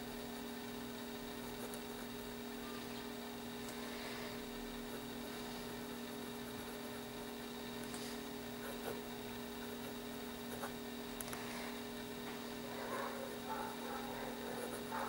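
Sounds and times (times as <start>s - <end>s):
electrical hum: 0.0s - 15.0s
pen nib scratching on paper: 6.5s - 7.0s, 8.6s - 10.8s, 14.5s - 15.0s.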